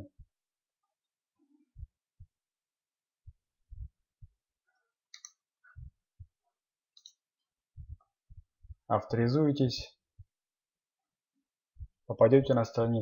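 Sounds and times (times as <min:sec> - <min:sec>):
soft low thumps: 0:01.7 - 0:02.4, 0:03.2 - 0:04.5, 0:05.7 - 0:06.4, 0:07.7 - 0:08.9
computer mouse clicks: 0:05.1 - 0:05.4, 0:07.0 - 0:07.2.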